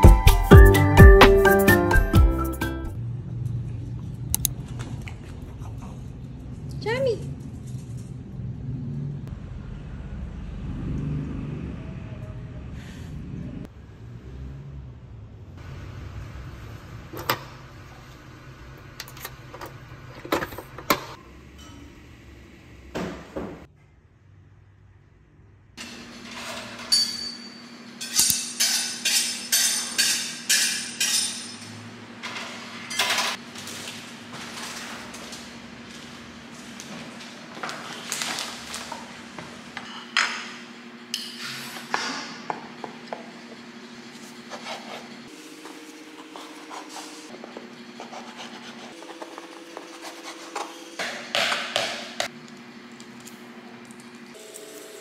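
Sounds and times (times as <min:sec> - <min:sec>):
dishes and utensils clinking on stone: 0:26.2 - 0:33.4.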